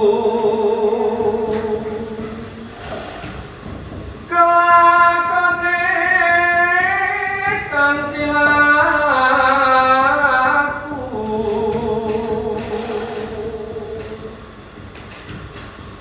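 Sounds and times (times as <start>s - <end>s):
man singing a cappella: 0.0s - 2.4s, 4.3s - 14.4s.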